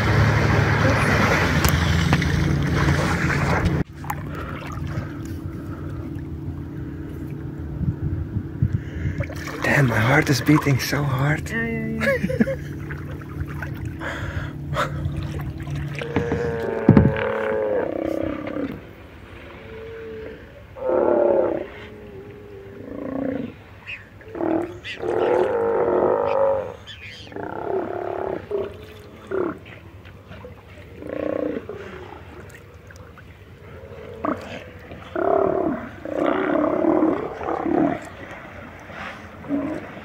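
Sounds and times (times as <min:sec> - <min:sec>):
sea lions calling: 0:15.8 - 0:40.0.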